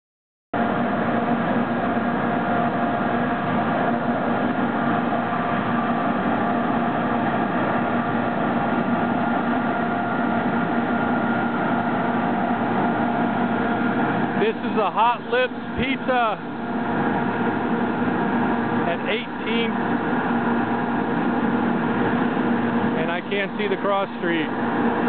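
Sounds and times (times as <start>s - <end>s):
exhaust fan humming: 0.6s - 25.0s.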